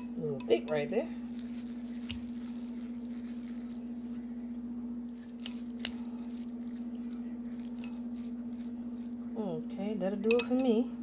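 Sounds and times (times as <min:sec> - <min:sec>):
low electrical hum: 0:00.0 - 0:11.0
utensil clicking against bowl: 0:10.2 - 0:10.7.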